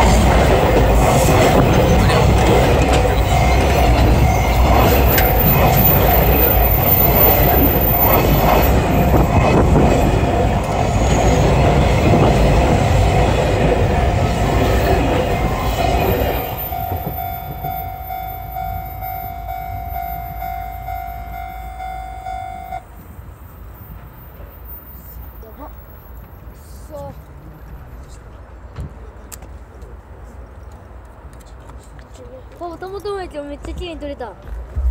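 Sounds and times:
train wheels clattering over rail joints: 0.0 - 18.2
steady ringing tone: 2.8 - 9.5, 16.4 - 22.9.

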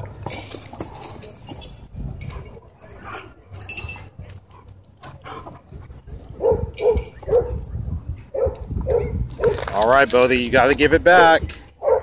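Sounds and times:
dog barking: 6.4 - 7.6, 8.3 - 9.6, 11.8 - 12.0.

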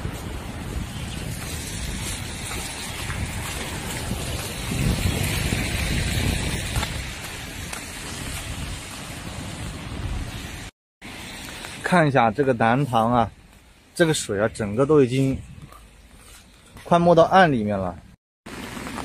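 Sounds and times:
wind buffeting microphone: 0.0 - 10.7, 14.5 - 16.0.

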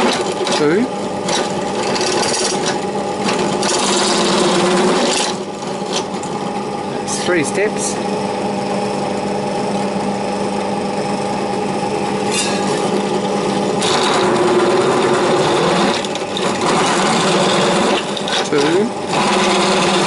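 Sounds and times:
drill bit cutting steel sheet: 0.0 - 6.2, 12.0 - 20.0
drill press humming: 0.0 - 20.0.

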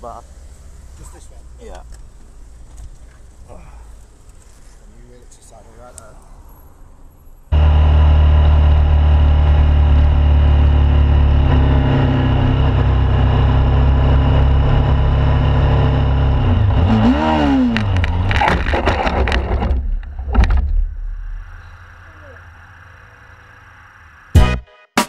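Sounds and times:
motorcycle engine: 7.5 - 24.4
motorcycle scraping on road: 15.7 - 23.8.

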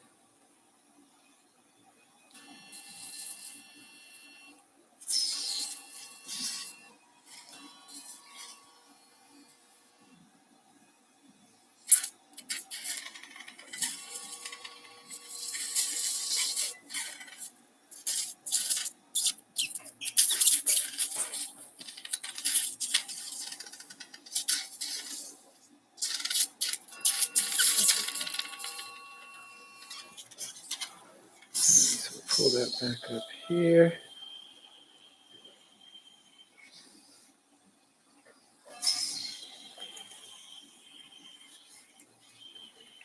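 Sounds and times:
cautery hissing and crackling: 11.8 - 33.2
steady electronic tone: 26.8 - 36.8.

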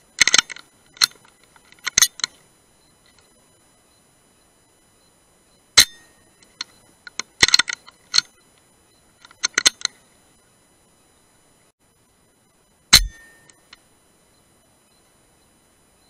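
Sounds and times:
sharp metallic clicks: 0.2 - 2.4, 5.8 - 8.6, 9.2 - 10.0, 12.9 - 13.8
air rifle shot: 13.0 - 13.4.

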